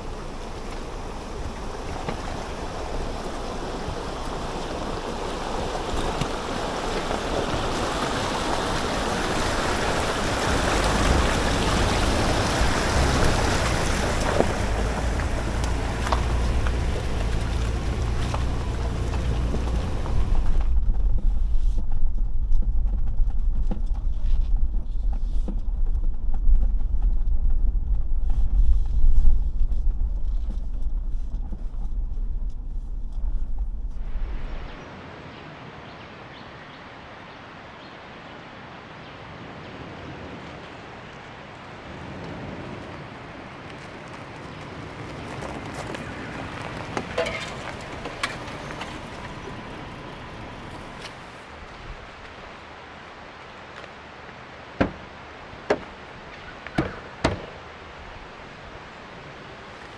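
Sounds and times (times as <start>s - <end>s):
steady rushing noise: 0.0s - 59.9s
vehicle engine and road rumble: 0.0s - 59.9s
short knocks: 54.8s - 55.1s, 56.7s - 57.6s.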